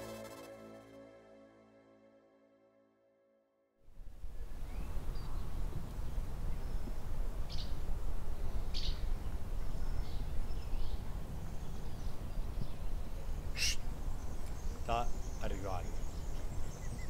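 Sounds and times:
small birds chirping: 4.4 - 17.0.

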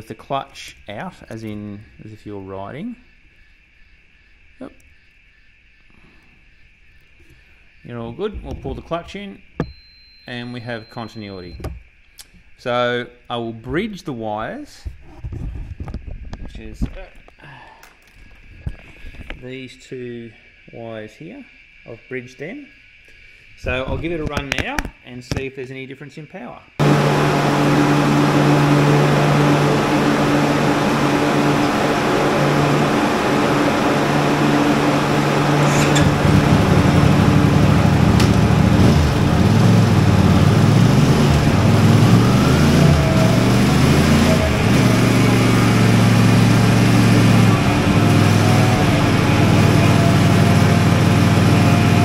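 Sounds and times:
motorcycle engine revving: 26.8 - 52.0.

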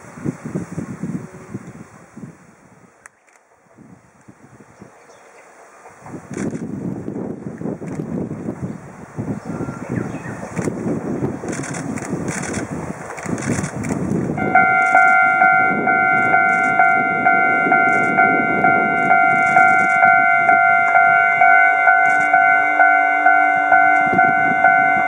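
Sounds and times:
wind rumble on microphone: 0.0 - 3.0, 3.6 - 25.0
level-crossing warning bell: 14.4 - 25.0.

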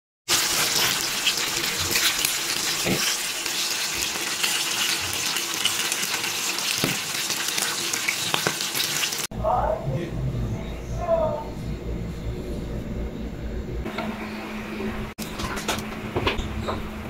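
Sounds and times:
meat sizzling in a pan: 0.3 - 9.3.

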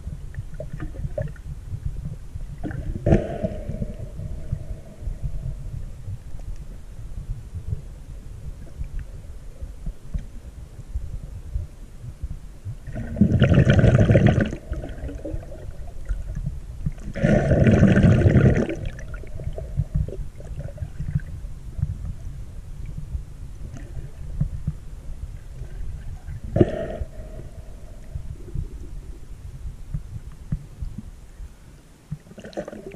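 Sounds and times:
muffled underwater rumble: 0.0 - 32.9
breathing through snorkel: 26.6 - 28.1.

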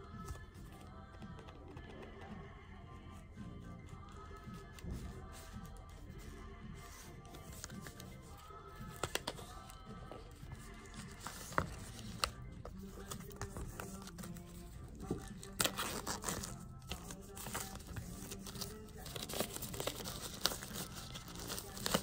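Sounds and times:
background music with held notes: 0.0 - 22.0
plastic shrink-wrap crinkling and tearing: 15.3 - 22.0.

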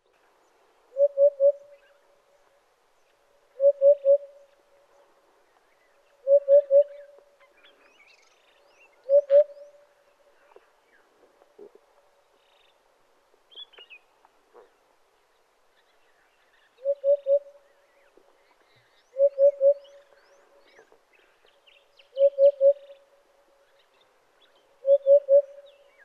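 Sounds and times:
hoopoe calling: 0.9 - 2.0, 3.5 - 4.6, 6.1 - 7.5, 9.0 - 9.9, 16.8 - 17.7, 19.1 - 21.4, 22.1 - 23.2, 24.8 - 26.0.

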